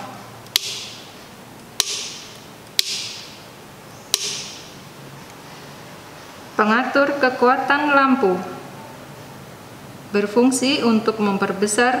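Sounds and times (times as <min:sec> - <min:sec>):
power switch clicks: 0:00.4 - 0:01.1, 0:01.7 - 0:03.4, 0:04.1 - 0:04.7.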